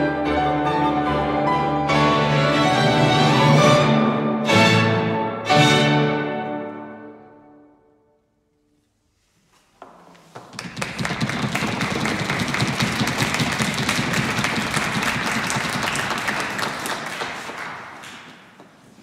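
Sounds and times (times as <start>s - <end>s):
hand-clapping applause: 10.4s - 18.7s.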